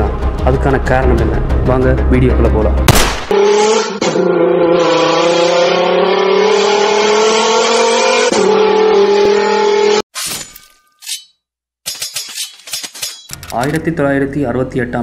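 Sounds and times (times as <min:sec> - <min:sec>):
sports car engine accelerating: 0:03.3 - 0:10.0.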